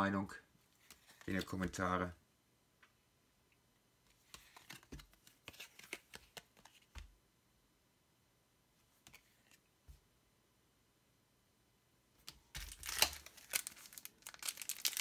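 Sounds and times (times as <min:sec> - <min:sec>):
trading cards rustling and tapping: 0:04.1 - 0:07.1.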